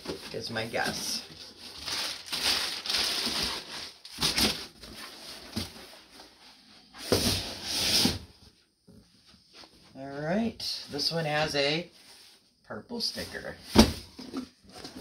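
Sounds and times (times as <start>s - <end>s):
packing material rustling: 0.0s - 6.1s.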